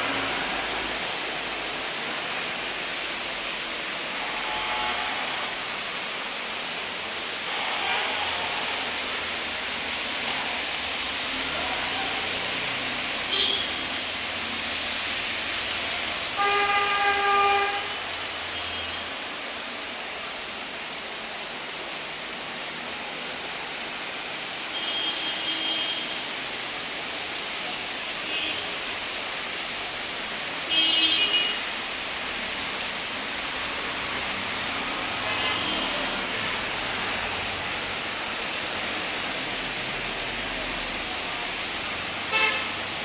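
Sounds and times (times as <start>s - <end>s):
steady rain: 0.0s - 43.0s
horn sounding: 16.4s - 18.0s, 42.3s - 42.7s.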